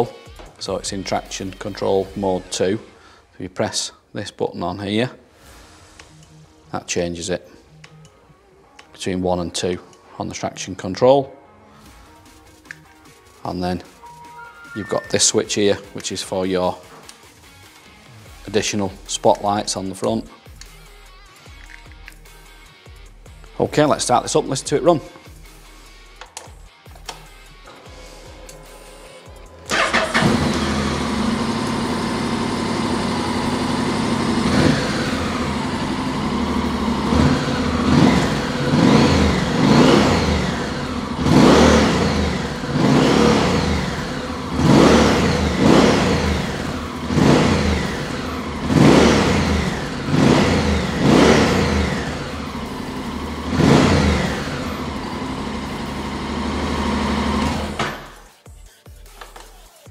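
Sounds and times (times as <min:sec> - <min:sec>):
motorcycle engine starting: 0:27.7 - 0:58.2
motorcycle engine revving: 0:29.6 - 0:58.2.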